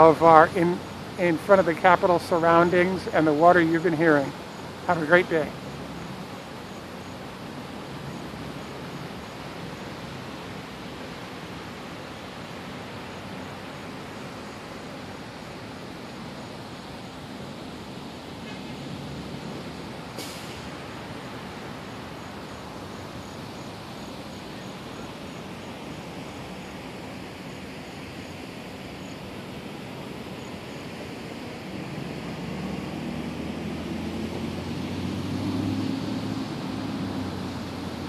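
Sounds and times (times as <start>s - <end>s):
fountain water splashing: 0.0s - 38.0s
passing vehicle engine drone: 0.0s - 38.0s.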